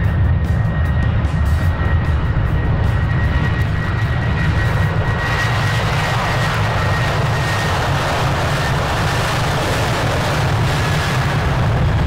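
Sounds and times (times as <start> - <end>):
jet engines rumbling: 0.0 - 12.0.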